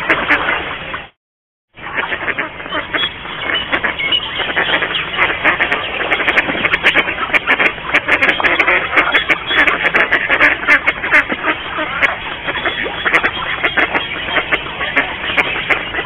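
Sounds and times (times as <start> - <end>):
ducks quacking: 0.0 - 1.2, 1.8 - 16.0.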